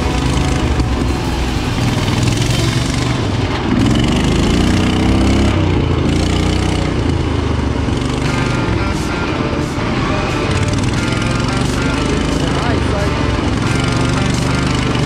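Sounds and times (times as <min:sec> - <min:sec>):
lawn mower engine revving: 0:00.0 - 0:15.0.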